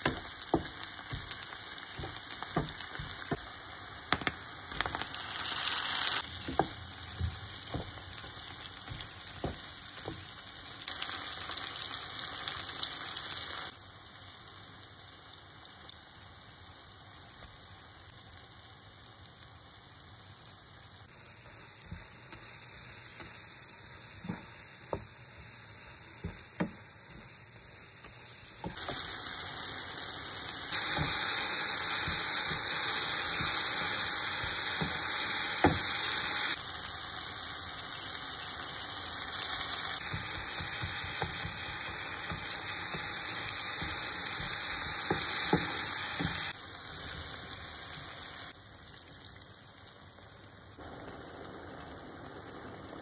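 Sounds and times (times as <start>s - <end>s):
wooden spatula knocking pan: 0.0s - 3.5s, 6.3s - 10.4s, 26.2s - 27.4s, 30.8s - 36.0s, 40.0s - 46.5s
vegetables sizzling in oil: 0.0s - 53.0s.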